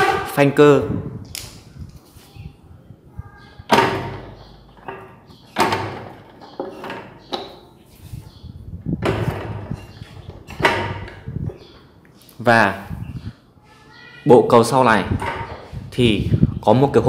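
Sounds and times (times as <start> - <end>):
sharp metallic clunks: 3.6 - 7.8, 9.0 - 11.7.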